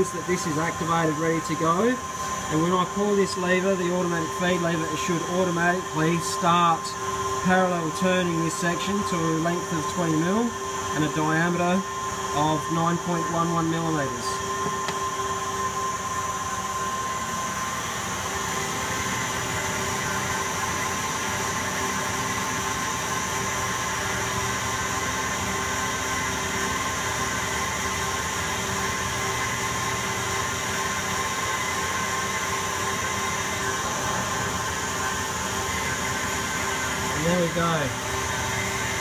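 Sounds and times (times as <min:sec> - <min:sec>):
lathe machine hum: 0:00.0 - 0:39.0
whining tones: 0:29.5 - 0:39.0.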